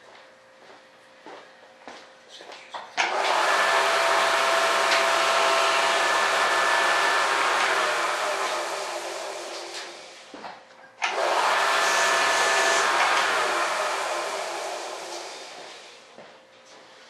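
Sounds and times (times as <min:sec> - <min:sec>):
electric motor whining: 0:03.0 - 0:10.2, 0:11.1 - 0:15.9.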